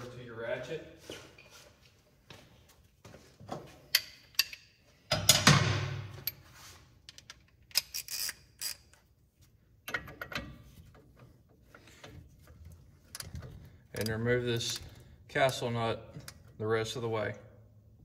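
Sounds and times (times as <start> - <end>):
ratchet clicking: 7.1 - 9.0.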